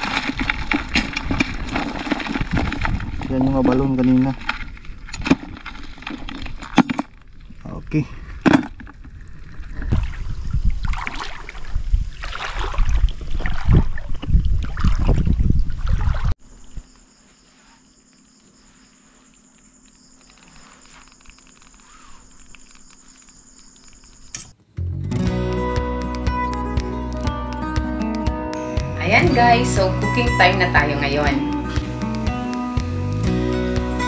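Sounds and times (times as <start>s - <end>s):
insect trill: 16.4s - 24.6s.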